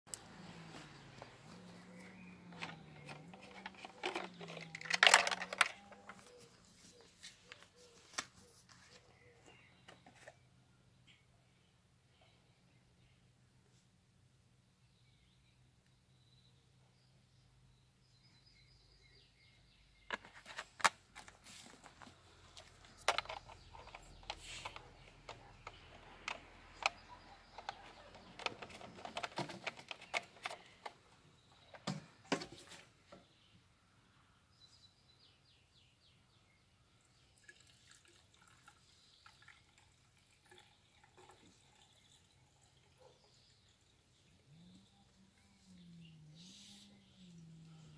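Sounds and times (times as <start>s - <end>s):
plastic caps clicking and knocking: 2.5s - 6.4s, 20.1s - 31.0s
fuel trickling into tank: 37.4s - 44.1s.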